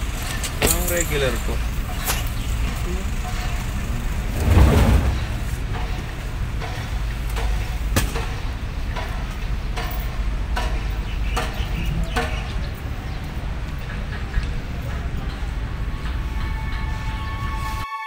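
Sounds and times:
steady low rumble: 3.2s - 17.0s.

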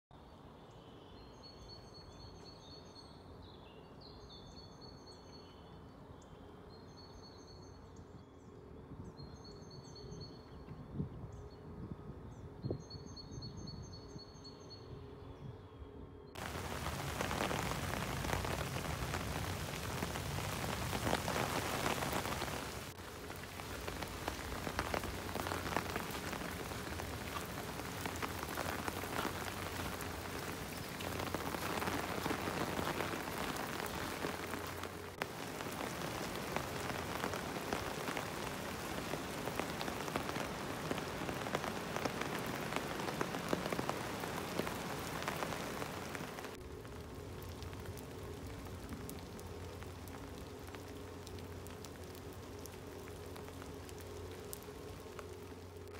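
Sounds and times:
steady rain hissing: 16.4s - 55.9s.

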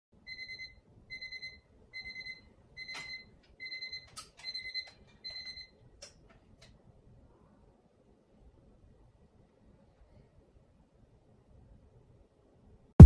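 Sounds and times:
electronic alarm beeping: 0.3s - 5.7s.

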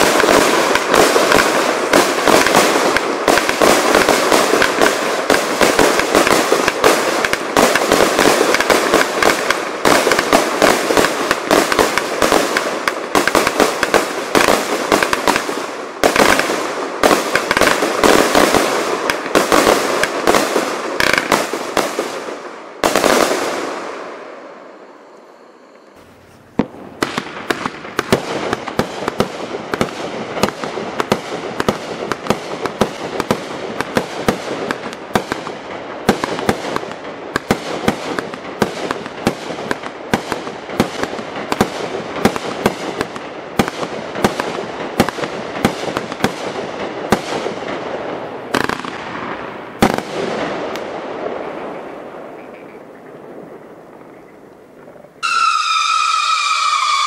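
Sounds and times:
sharp pops and crackles: 0.0s - 22.0s, 26.2s - 47.9s, 48.5s - 55.6s
firework cakes firing: 0.0s - 24.8s, 25.5s - 57.0s.

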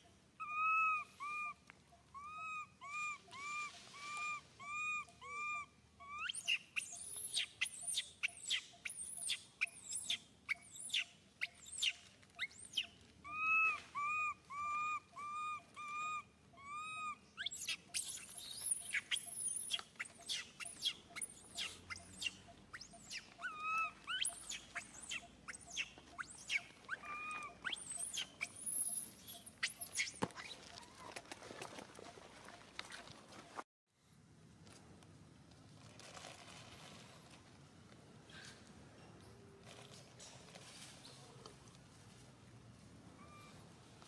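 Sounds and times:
baby monkey crying: 0.4s - 1.6s, 2.2s - 6.6s, 12.5s - 30.1s.

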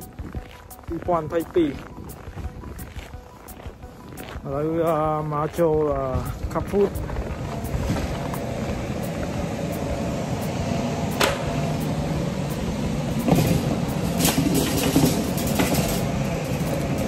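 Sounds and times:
shopping cart wheels rumbling: 4.0s - 17.0s
shopping cart rattling: 13.1s - 17.0s.

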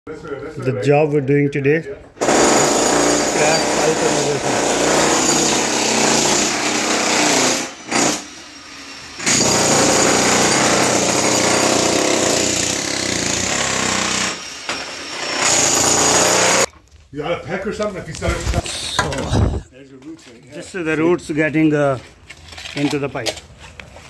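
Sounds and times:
demolition hammer chipping concrete: 2.2s - 16.7s.

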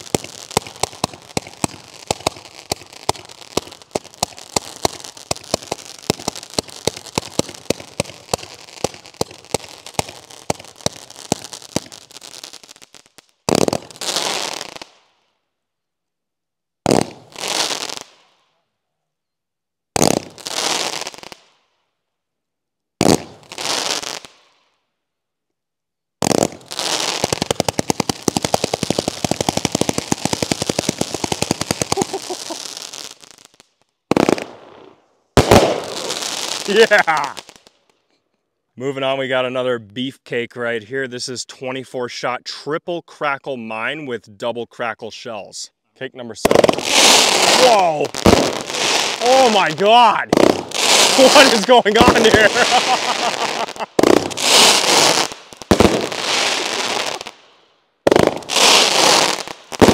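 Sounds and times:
rapid volley of firework shots: 0.0s - 12.0s, 13.5s - 14.7s, 16.8s - 17.9s, 20.0s - 21.2s, 23.0s - 24.1s, 26.2s - 33.2s, 34.1s - 37.6s, 46.4s - 57.4s, 58.1s - 59.9s
firework bangs: 0.0s - 12.6s, 13.4s - 14.9s, 16.8s - 18.1s, 19.9s - 21.3s, 23.0s - 24.4s, 26.2s - 33.4s, 34.1s - 37.7s, 46.4s - 59.9s.

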